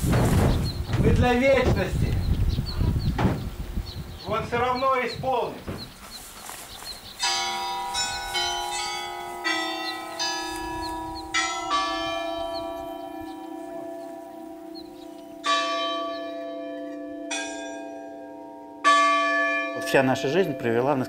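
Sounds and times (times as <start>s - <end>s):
church bells ringing: 7.1s - 21.0s.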